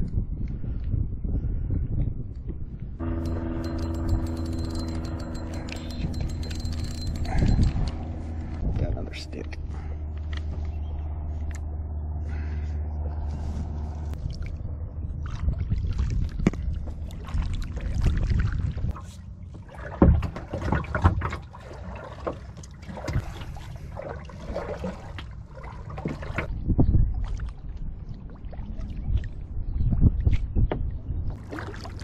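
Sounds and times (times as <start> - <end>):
steady low hum: 2.8 - 20.0
paddle splashing through water: 15.2 - 26.5, 31.4 - 32.0.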